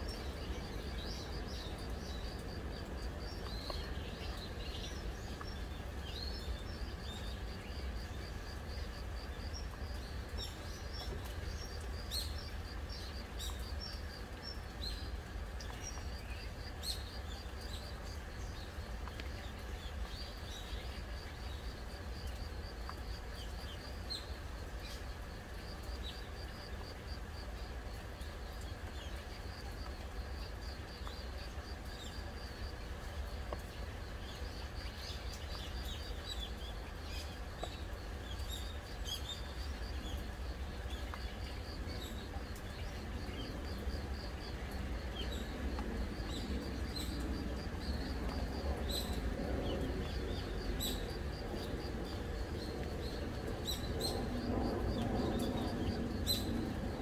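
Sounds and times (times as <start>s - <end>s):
gentle rain hiss: 0.0s - 57.0s.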